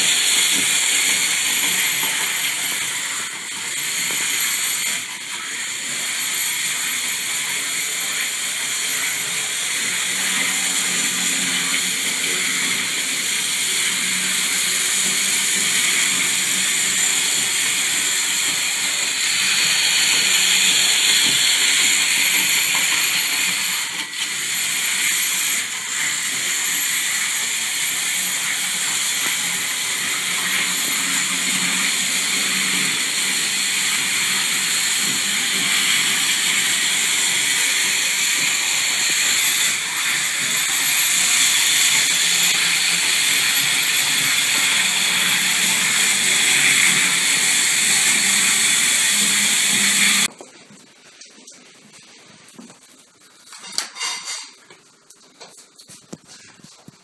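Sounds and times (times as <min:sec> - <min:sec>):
model train motor whirring: 0:00.0 - 0:02.8, 0:05.7 - 0:50.3.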